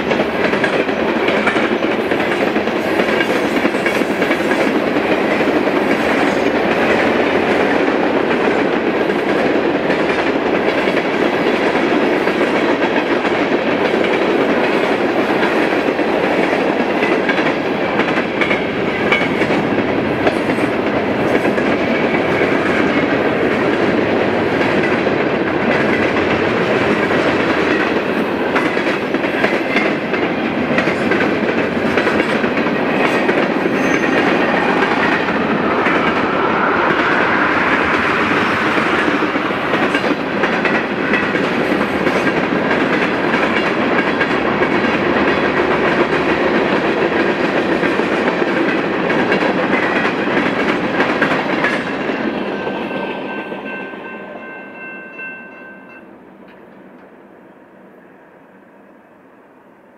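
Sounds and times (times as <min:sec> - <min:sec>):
freight train rumble: 0:00.0 - 0:58.2
high whine: 0:33.7 - 0:40.4.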